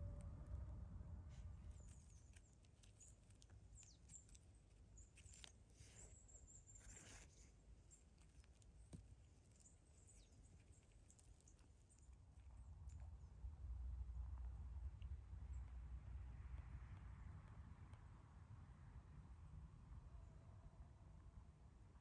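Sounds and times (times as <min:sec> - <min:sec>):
faint rustles and clicks: 0:01.3 - 0:13.3.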